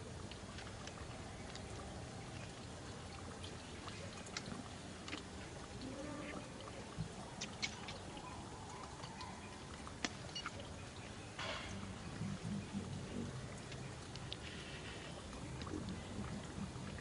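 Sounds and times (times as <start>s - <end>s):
background hiss: 0.0s - 17.0s
faint clicks and rustles: 12.8s - 17.0s.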